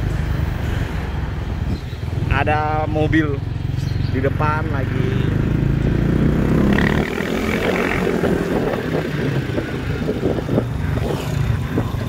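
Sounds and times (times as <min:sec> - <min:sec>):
road and traffic noise: 0:00.0 - 0:12.0
wind buffeting microphone: 0:06.3 - 0:12.0.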